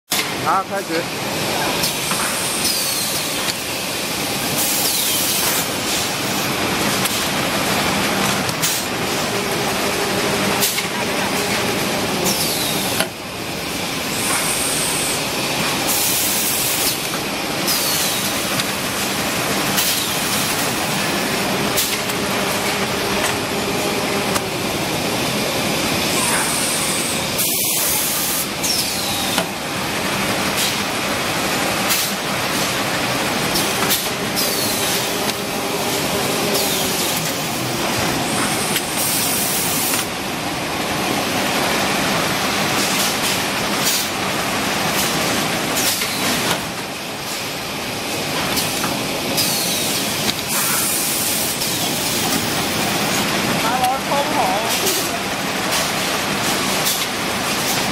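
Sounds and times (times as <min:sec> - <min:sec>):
packing machine running: 0:00.2 - 0:57.9.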